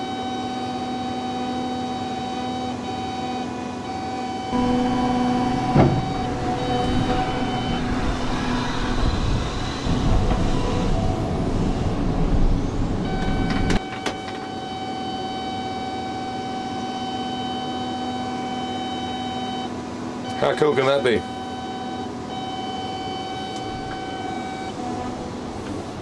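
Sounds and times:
excavator hum: 0.0 - 26.0.

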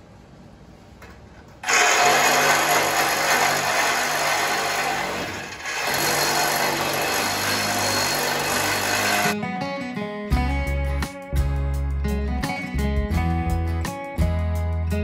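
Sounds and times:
power tool whining on metal: 1.6 - 9.4.

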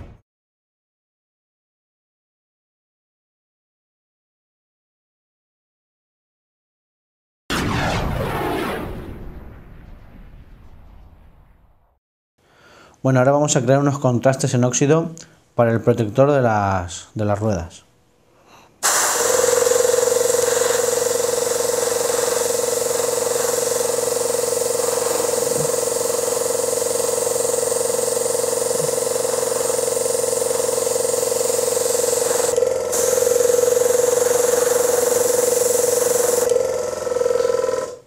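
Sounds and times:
airbrush air hiss: 18.8 - 36.5.

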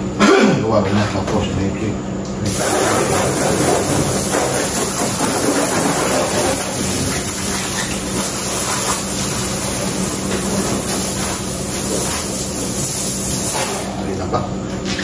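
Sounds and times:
steady low hum: 0.0 - 15.0
hose water spraying on car: 2.5 - 13.8.

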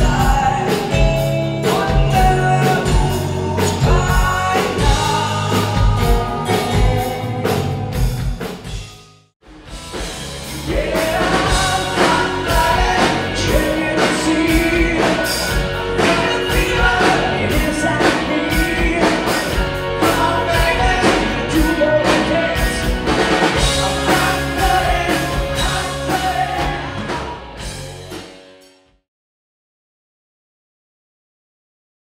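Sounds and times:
man singing: 0.0 - 8.1, 10.6 - 27.5
electric guitars: 0.0 - 8.9, 9.5 - 28.7
drum kit beat: 0.0 - 28.7.

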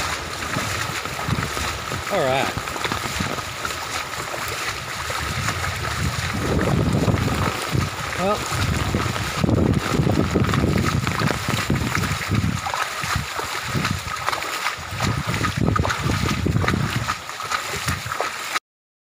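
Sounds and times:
floodwater rushing: 0.0 - 18.6
person wading splashing: 0.0 - 18.6.

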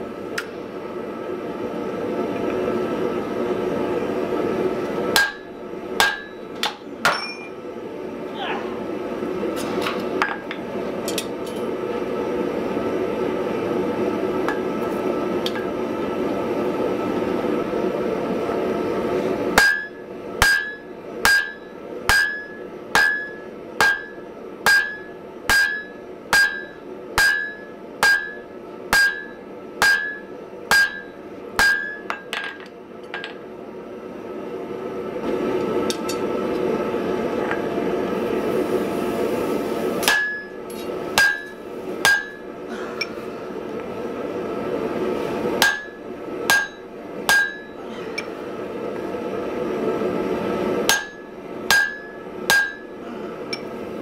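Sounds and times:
hammer striking iron on anvil: 5.1 - 7.5, 19.6 - 33.4, 40.0 - 40.6, 41.2 - 42.4, 45.6 - 47.8, 50.9 - 53.7.

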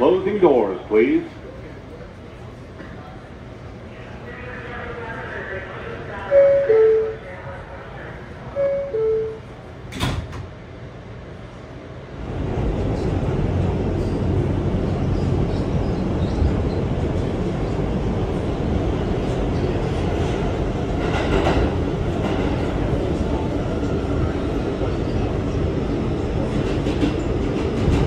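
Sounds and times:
train rumbling away: 0.0 - 28.0
subway car doors knocking shut: 9.8 - 10.6, 20.3 - 22.9, 26.4 - 28.0.

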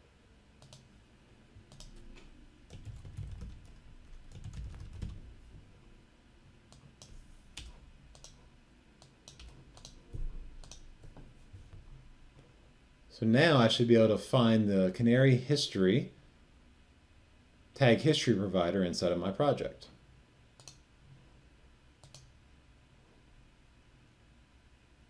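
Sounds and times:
keyboard typing: 0.6 - 0.9, 1.7 - 5.3, 6.7 - 8.4, 9.0 - 11.0
mouse clicks: 0.6 - 0.9, 1.7 - 2.3, 6.7 - 8.4, 9.0 - 10.0, 10.6 - 10.9, 20.6 - 20.8, 22.0 - 22.3.

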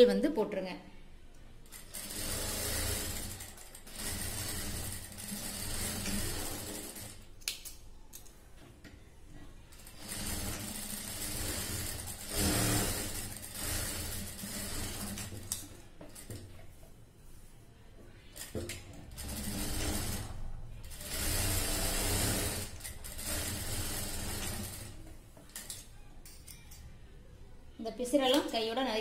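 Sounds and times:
industrial sewing machine stitching: 1.7 - 7.2, 9.7 - 15.6, 18.4 - 25.8.

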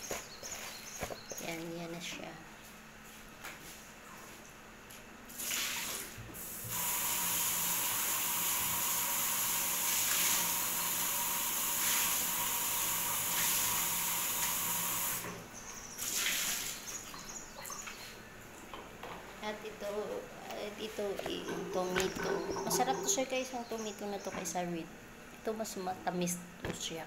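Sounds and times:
tap water running into sink: 6.6 - 15.4.

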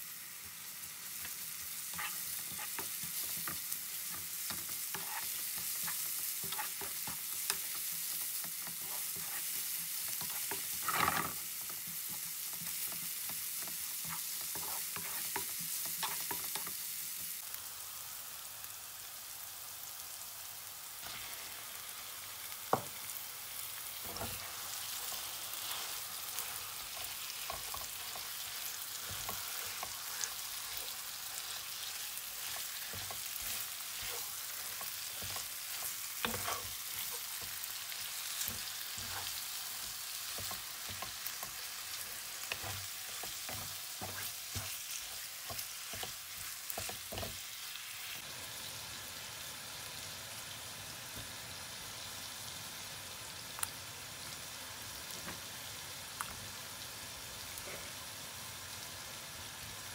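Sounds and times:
food sizzling in a pan: 0.0 - 59.9
wooden spatula scraping a pan: 1.3 - 3.7, 4.4 - 16.7, 24.0 - 37.6, 38.2 - 47.4.

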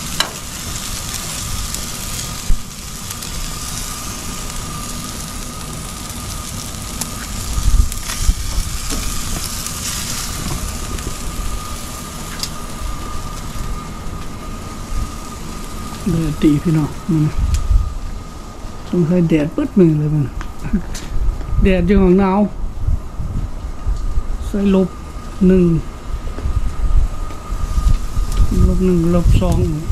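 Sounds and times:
meat sizzling on grill: 0.0 - 29.9.

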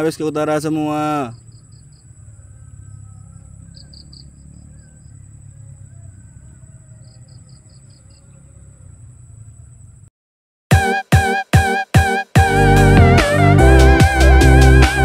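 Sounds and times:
insects droning: 0.0 - 10.1
rapid insect chirps: 0.0 - 10.1.

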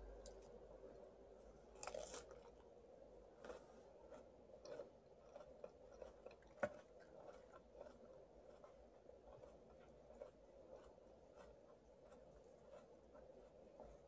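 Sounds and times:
leaves crunching when chewed: 1.8 - 2.5.

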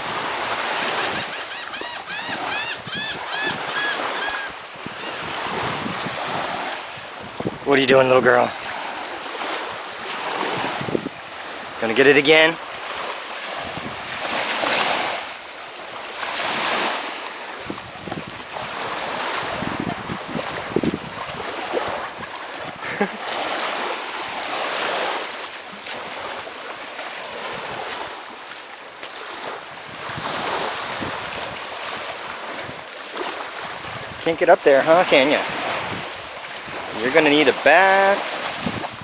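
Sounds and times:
small waves washing onto beach: 0.0 - 39.0.

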